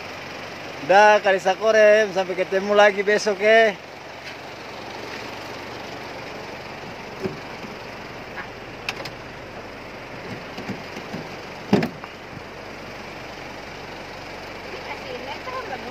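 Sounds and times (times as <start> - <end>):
car engine running: 0.0 - 15.9
knocks and thumps: 7.2 - 7.8, 10.2 - 12.1.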